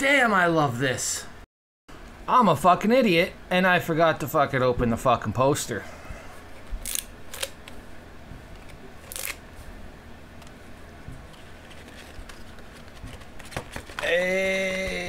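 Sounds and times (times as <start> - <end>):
paper rustling: 11.2 - 14.1
man saying ooh: 14.0 - 15.0.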